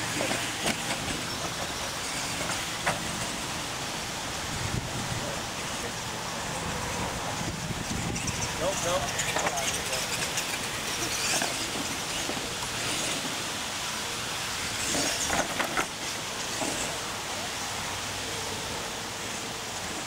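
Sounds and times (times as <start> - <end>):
rc truck motors running: 0.0 - 20.0.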